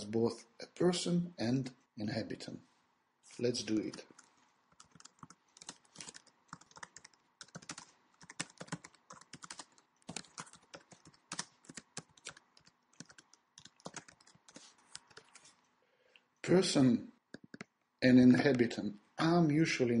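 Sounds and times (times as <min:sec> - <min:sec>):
typing on a computer keyboard: 0:03.9 - 0:15.4, 0:17.3 - 0:17.7.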